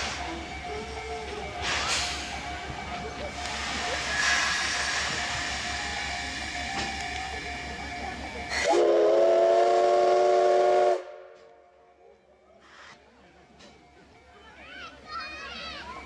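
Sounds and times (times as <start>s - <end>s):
steam hissing: 0.0s - 11.3s
steam whistle blast: 8.5s - 11.4s.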